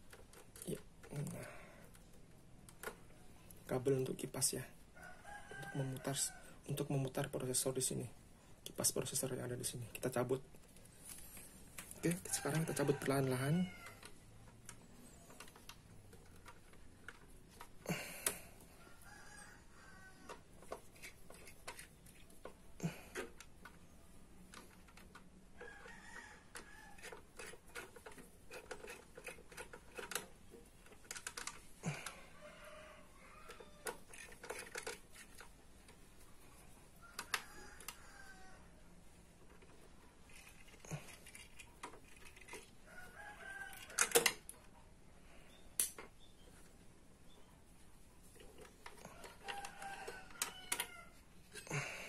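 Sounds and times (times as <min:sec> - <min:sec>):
clicks and knocks of plastic parts: 0:00.0 - 0:04.5, 0:08.6 - 0:18.6, 0:20.2 - 0:32.2, 0:33.5 - 0:36.5, 0:37.1 - 0:38.0, 0:39.4 - 0:42.8, 0:43.5 - 0:44.8, 0:48.2 - 0:52.0.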